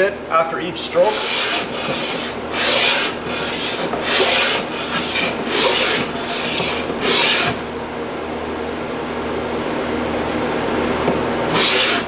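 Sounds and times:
steel rasping on sandpaper: 1.1s - 7.6s, 11.5s - 12.0s.

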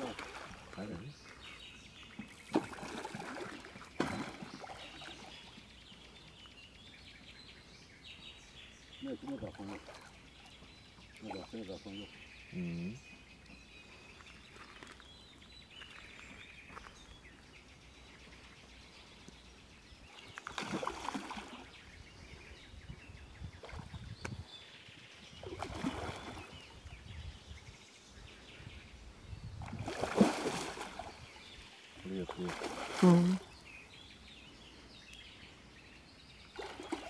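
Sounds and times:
fish thrashing and splashing: 2.4s - 5.2s, 29.8s - 31.1s.

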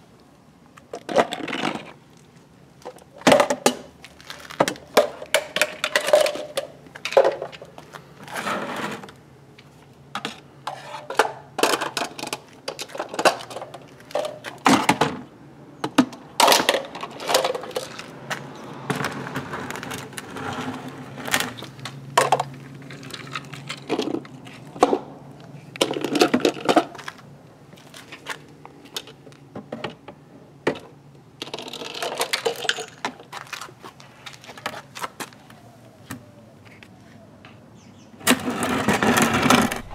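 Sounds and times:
plastic bins clacking: 10.2s - 18.1s.

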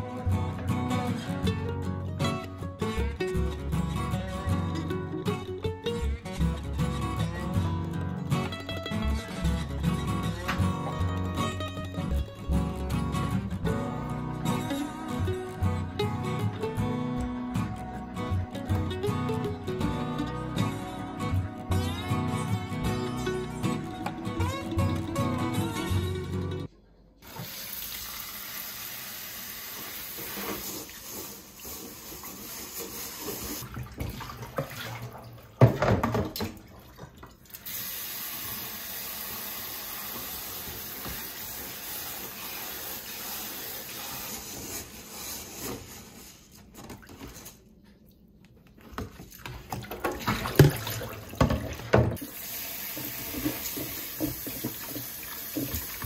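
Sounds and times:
tap water running into steel sink: 32.0s - 44.4s, 49.7s - 56.0s
knocks and splashes: 33.6s - 37.5s, 48.9s - 52.3s, 52.9s - 56.0s.

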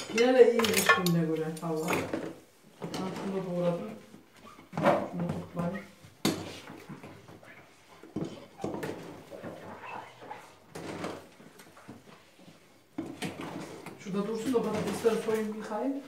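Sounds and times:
dishes clinking: 0.0s - 2.1s.

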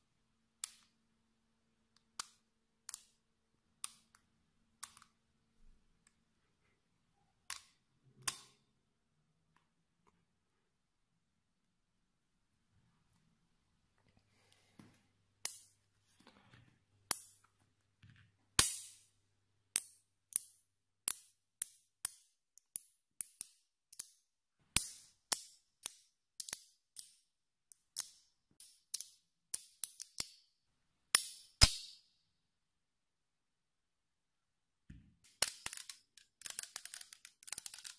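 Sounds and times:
magnetic balls clicking together: 19.8s - 30.5s, 35.2s - 37.9s.

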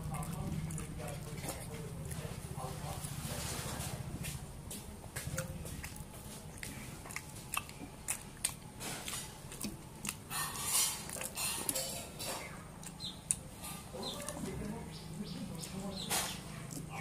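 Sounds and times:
low steady hum: 0.0s - 17.0s
wet chewing: 0.0s - 17.0s
lip smacks: 5.2s - 14.8s, 15.6s - 17.0s.

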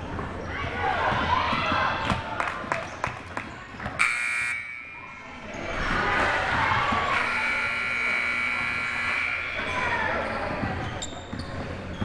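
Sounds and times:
voices in a hall: 0.0s - 12.0s
scoreboard buzzer: 4.0s - 5.1s, 7.1s - 9.8s.

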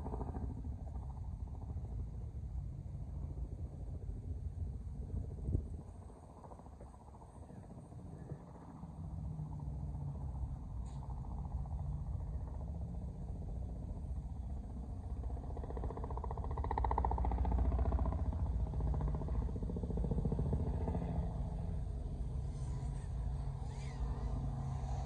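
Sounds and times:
low rumble: 0.0s - 25.0s
drone propellers buzzing: 11.4s - 25.0s.

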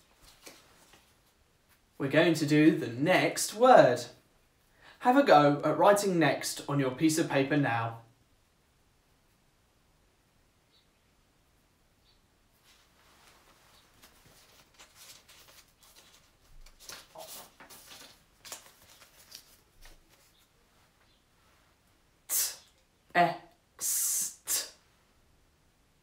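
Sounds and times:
paper cards rustling: 0.0s - 1.9s, 12.7s - 21.1s
man sounding out a word: 2.0s - 4.2s, 5.0s - 8.1s, 22.3s - 24.8s.

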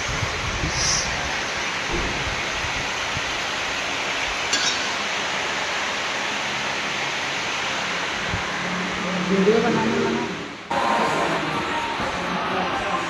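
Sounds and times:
steady hissing noise: 0.0s - 13.0s
short metallic clink: 4.5s - 5.1s.

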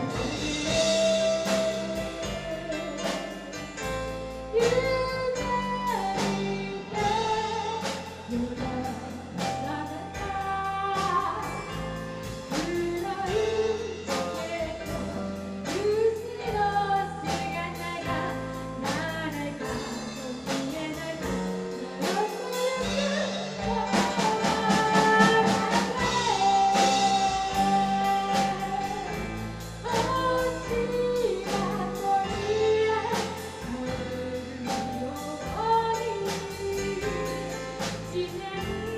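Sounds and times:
drum kit: 0.0s - 38.9s
electric bass: 0.0s - 38.9s
woman singing: 0.0s - 38.9s.

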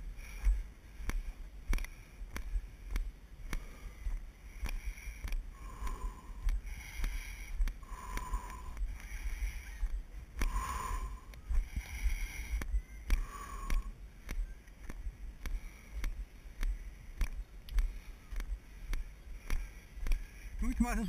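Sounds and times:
person breathing heavily: 0.0s - 21.0s.

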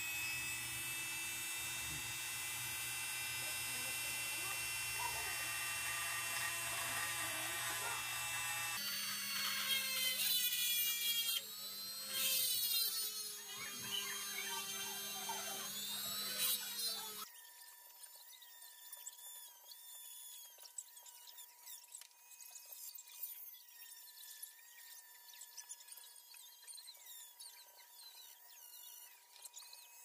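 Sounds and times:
rotary tool whining: 0.0s - 30.0s.

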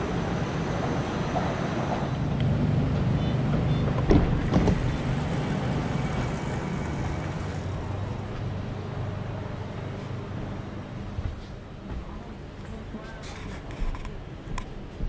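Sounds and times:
electric train humming: 4.4s - 12.4s.

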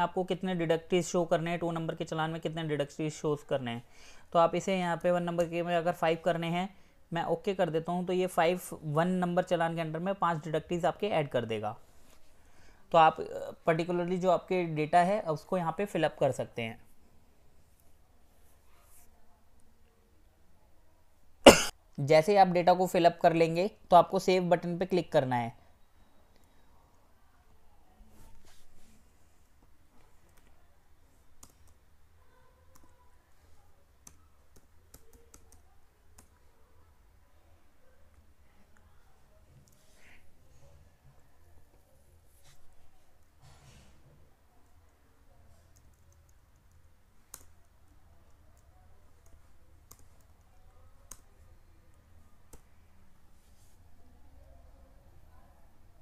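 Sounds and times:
keyboard and mouse clicks: 34.0s - 36.4s.

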